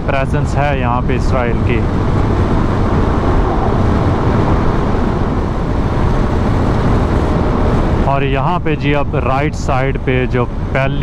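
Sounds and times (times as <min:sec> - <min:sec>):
wind and road noise: 0:00.0 - 0:11.0
motorcycle engine cruising: 0:00.8 - 0:08.1.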